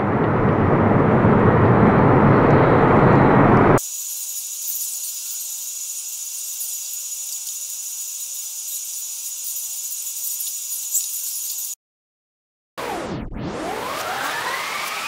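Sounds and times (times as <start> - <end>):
high-pitched hiss: 3.8 - 11.8.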